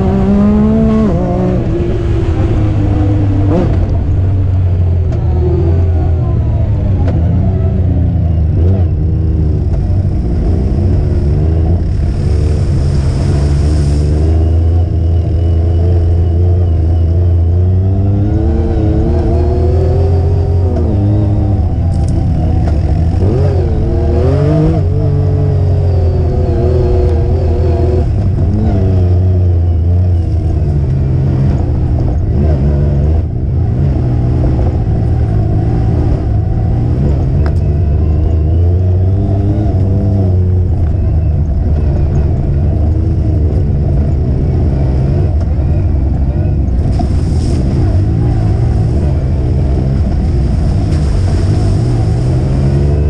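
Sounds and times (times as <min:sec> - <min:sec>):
deep steady rumble: 0:00.0 - 0:53.0
off-road vehicle engine revving: 0:00.0 - 0:53.0.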